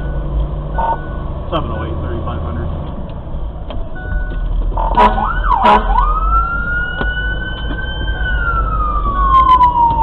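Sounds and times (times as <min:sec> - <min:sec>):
truck engine drone: 0:00.0 - 0:10.0
fire engine siren wailing: 0:03.8 - 0:10.0.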